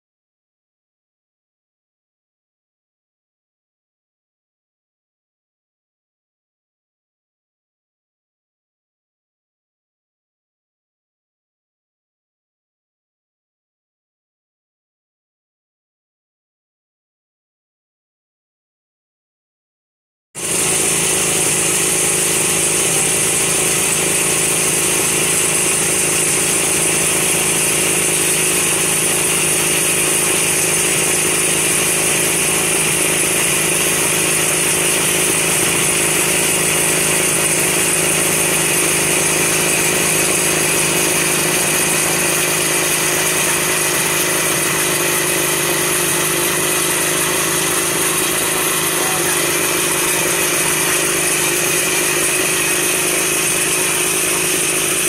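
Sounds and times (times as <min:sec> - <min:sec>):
snowmobile engines running: 0:20.4 - 0:55.0.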